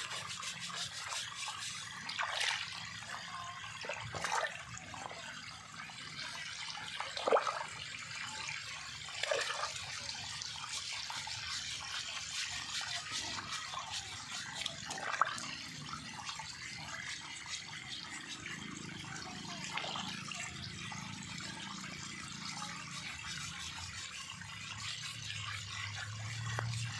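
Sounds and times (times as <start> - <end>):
scouring pad scrubbing: 0.0 - 2.9, 10.6 - 15.8
water sloshing in a metal basin: 0.0 - 26.9.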